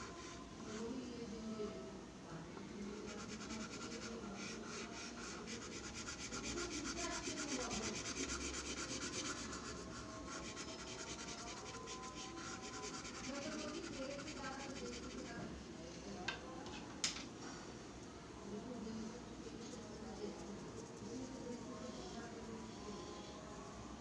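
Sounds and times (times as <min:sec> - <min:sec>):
charcoal scribbling on paper: 0:03.0 - 0:15.4, 0:19.5 - 0:22.2.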